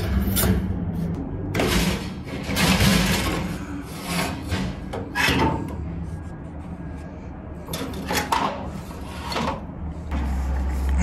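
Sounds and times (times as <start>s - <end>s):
metal scraping against metal: 0.0s - 10.9s.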